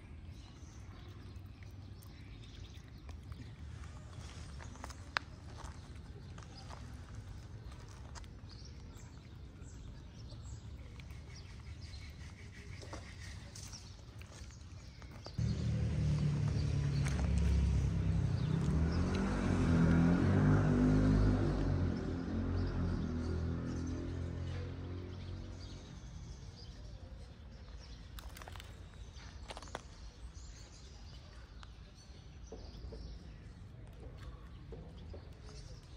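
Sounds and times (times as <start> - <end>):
cats chewing food: 0.6 - 12.2
low outdoor rumble: 14.3 - 26.0
steady low rumble: 15.4 - 19.5.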